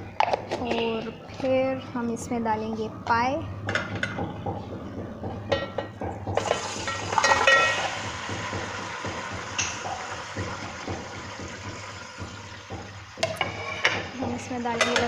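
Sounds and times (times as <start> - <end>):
food sizzling in hot oil: 6.4 - 15.0.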